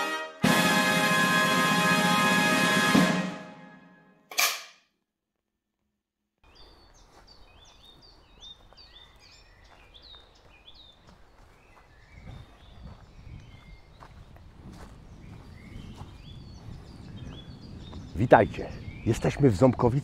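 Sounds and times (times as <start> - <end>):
birds chirping: 6.4 - 20.0.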